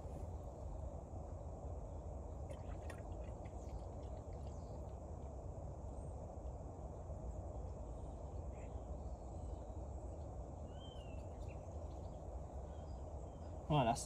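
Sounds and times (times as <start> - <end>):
low ambient rumble: 0.0 - 14.0
faint bird chirps: 7.8 - 14.0.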